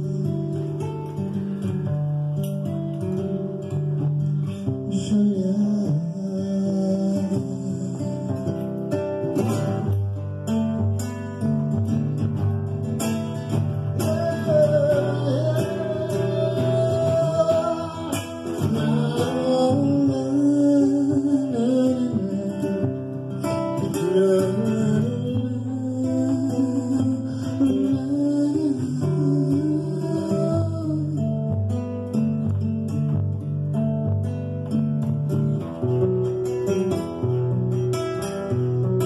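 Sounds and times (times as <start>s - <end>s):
man singing: 0.0s - 1.3s, 4.4s - 9.8s, 13.0s - 31.8s
acoustic guitar: 0.0s - 39.0s.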